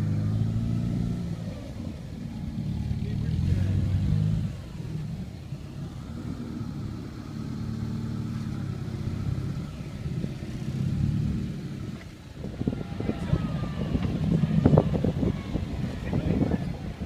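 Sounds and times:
car engine revving under load: 0.0s - 17.0s.

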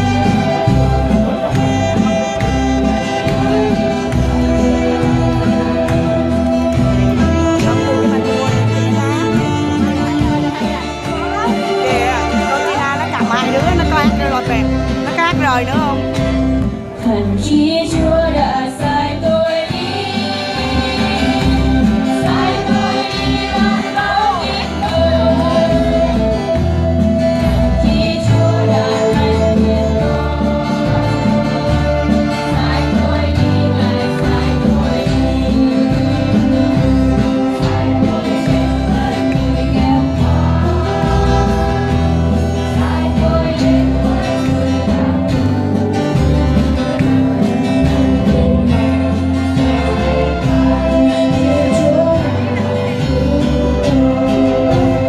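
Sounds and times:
instrumental accompaniment: 0.0s - 55.0s
children's choir singing a hymn: 17.1s - 55.0s.

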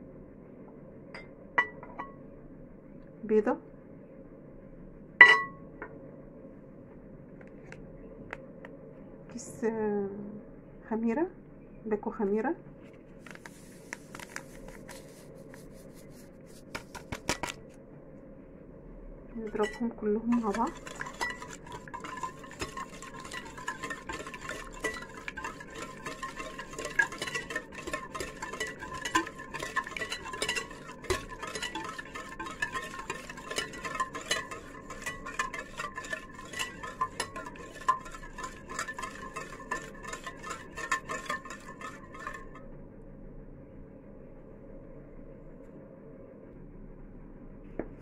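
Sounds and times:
utensil beating batter in bowl: 13.3s - 17.6s, 19.4s - 42.6s.

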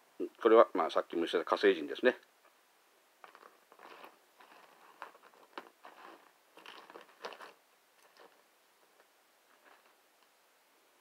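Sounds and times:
faint rustling: 3.2s - 10.4s.

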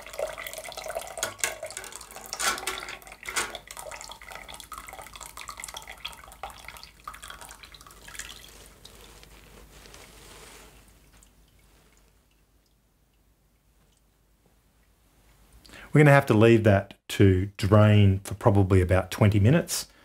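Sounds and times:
water splashing and dripping into a pot: 0.0s - 9.3s, 10.7s - 15.0s.

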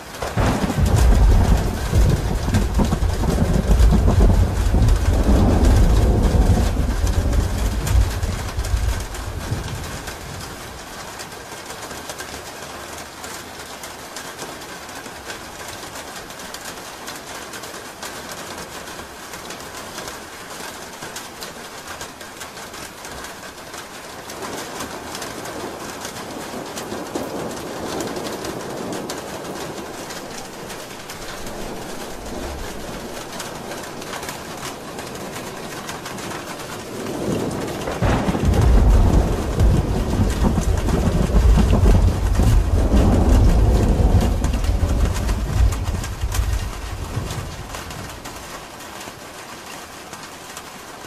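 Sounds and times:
rain falling on a roof: 0.0s - 51.0s
deep rumble of thunder: 0.1s - 10.9s, 25.4s - 48.6s.

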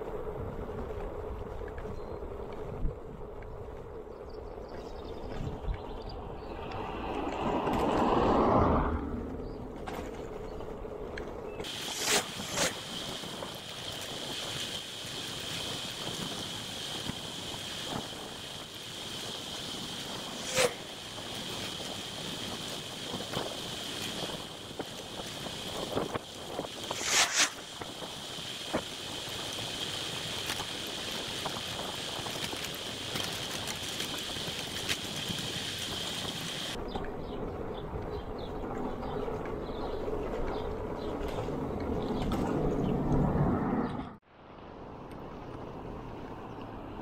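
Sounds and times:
bike rattling: 0.0s - 43.0s
bicycle tyre noise: 0.0s - 43.5s
wind rushing over microphone: 0.0s - 45.9s.

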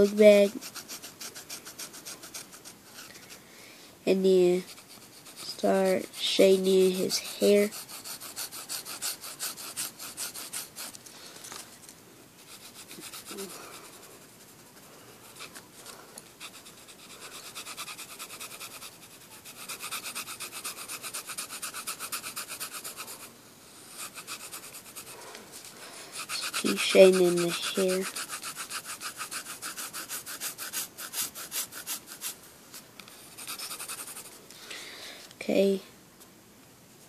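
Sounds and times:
pencil scratching on paper: 0.0s - 3.4s, 4.2s - 11.0s, 12.4s - 32.4s, 33.1s - 34.4s.

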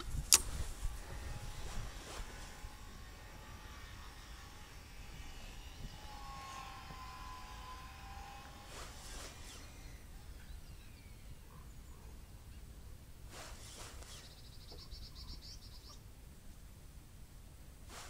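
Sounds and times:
low wind rumble on microphone: 0.0s - 11.6s.

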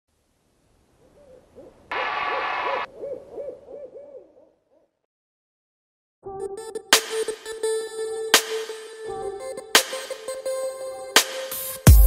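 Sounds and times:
owl hooting: 1.0s - 4.9s.

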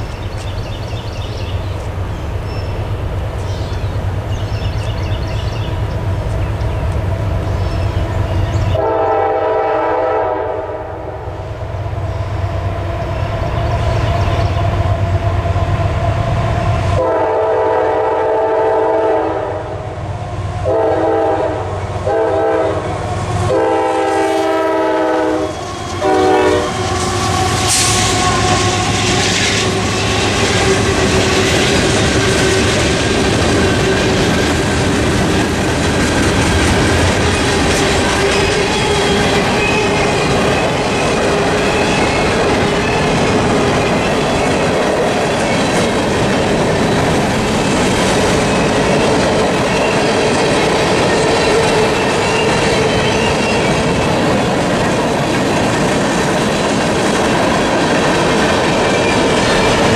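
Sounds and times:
train rumbling: 0.0s - 59.9s
train air horn blasts: 8.8s - 11.4s, 17.0s - 20.0s, 20.6s - 31.5s.

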